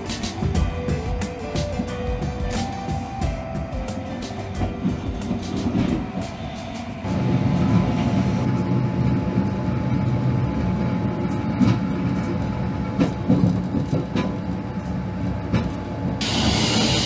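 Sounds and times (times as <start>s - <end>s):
train rumbling on rails: 0.0s - 17.0s
train wheels clacking over rail joints: 4.2s - 7.0s, 13.0s - 14.5s.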